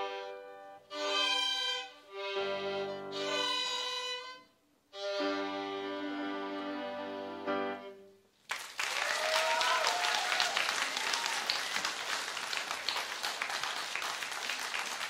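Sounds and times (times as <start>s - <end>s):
violins and piano chord: 0.0s - 8.2s
audience applauding: 8.4s - 15.0s
person whooping: 8.9s - 11.9s.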